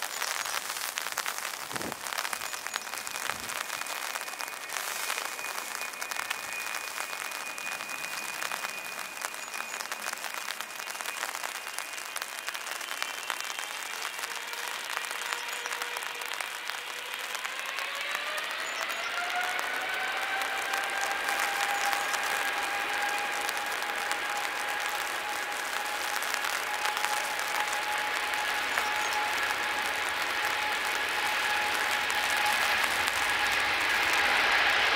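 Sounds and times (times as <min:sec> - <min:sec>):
heavy rain hissing: 0:00.0 - 0:34.9
jet engines whining: 0:13.8 - 0:34.9.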